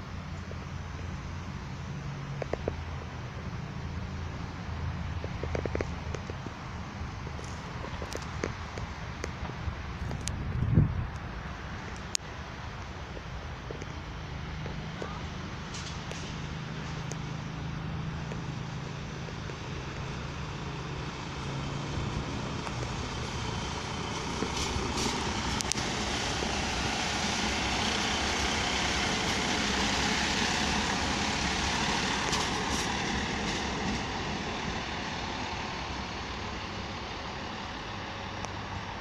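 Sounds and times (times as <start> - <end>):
diesel locomotive engine: 0.0 - 39.0
train wheels rolling: 11.0 - 39.0.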